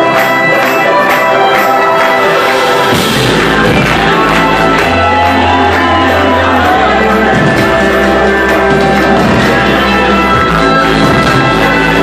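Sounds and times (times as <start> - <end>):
live band music: 0.0 - 12.0
deep bass: 2.8 - 12.0.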